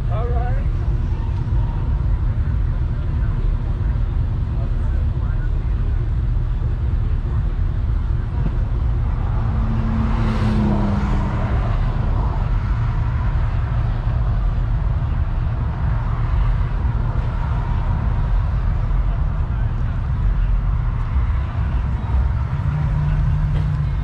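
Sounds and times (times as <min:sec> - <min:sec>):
motor vehicle engines rumbling: 0:00.0 - 0:24.0
vehicle passing: 0:08.6 - 0:24.0.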